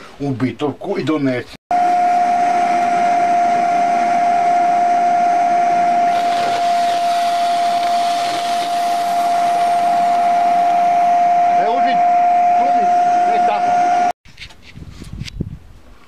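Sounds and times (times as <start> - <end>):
electric sander whining: 1.7 - 14.1.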